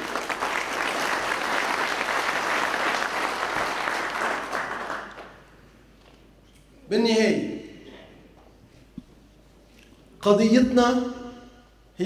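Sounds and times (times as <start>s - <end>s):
audience clapping: 0.0s - 5.6s.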